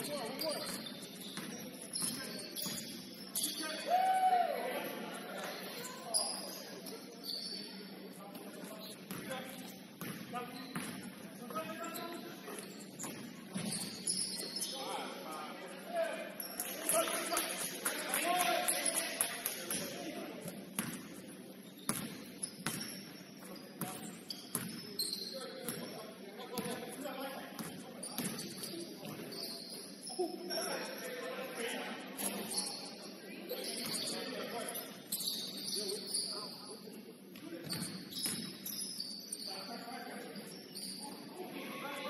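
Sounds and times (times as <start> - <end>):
short high squeaks: 0.0 - 3.8, 11.6 - 15.0, 21.6 - 26.1, 28.0 - 30.7, 32.2 - 36.8, 37.7 - 41.3
hubbub of players' voices: 0.0 - 42.0
basketball bouncing on gym floor: 0.5 - 3.0, 10.0 - 11.1, 20.8 - 21.1, 21.9 - 23.1, 23.8 - 24.8, 27.6 - 29.2.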